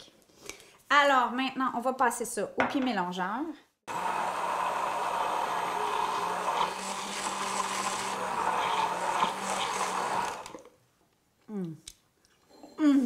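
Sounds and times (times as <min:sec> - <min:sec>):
immersion blender motor hum: 0:03.9 - 0:10.7
liquid being churned: 0:03.9 - 0:10.7.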